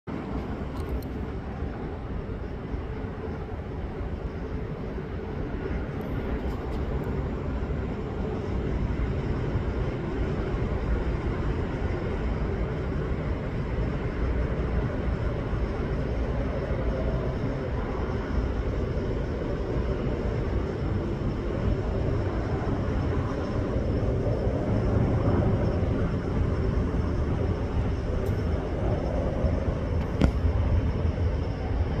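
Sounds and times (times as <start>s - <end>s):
jet engines rumbling overhead: 0.0s - 32.0s.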